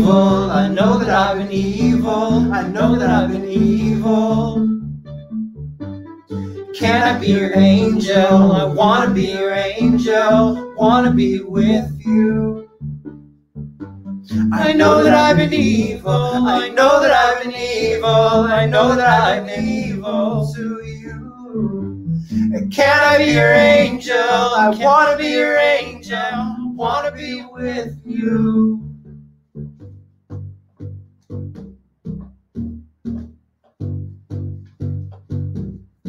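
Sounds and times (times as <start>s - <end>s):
person vocalizing into microphone: 0.0s - 4.7s, 6.3s - 12.7s, 14.3s - 28.9s
instrumental backing with bass: 0.0s - 36.0s.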